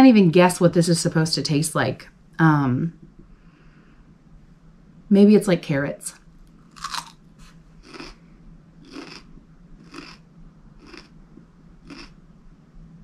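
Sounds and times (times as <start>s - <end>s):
biting into raw radish: 6.7s - 7.2s, 7.8s - 8.2s, 8.8s - 10.2s, 11.8s - 12.2s
person chewing: 6.7s - 8.2s, 8.8s - 10.2s, 10.8s - 11.2s, 11.8s - 12.2s.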